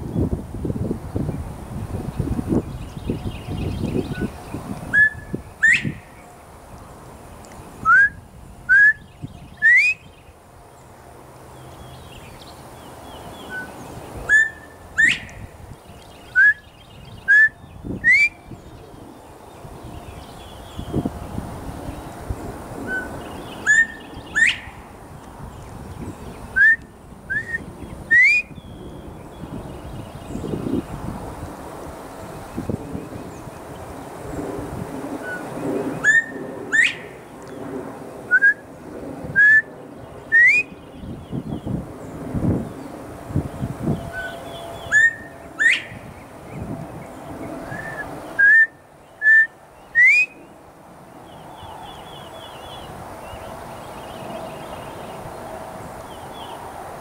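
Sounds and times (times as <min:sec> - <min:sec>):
bobwhite whistling: 0:04.9 - 0:06.0, 0:07.8 - 0:10.1, 0:13.5 - 0:15.5, 0:16.3 - 0:18.4, 0:22.9 - 0:24.8, 0:26.6 - 0:28.6, 0:35.2 - 0:37.2, 0:38.3 - 0:38.6, 0:39.4 - 0:39.7, 0:40.3 - 0:40.7, 0:44.1 - 0:46.0, 0:47.7 - 0:50.5
person whistling imitation: 0:07.9 - 0:09.0, 0:16.4 - 0:16.6, 0:26.6 - 0:28.4, 0:47.8 - 0:50.3.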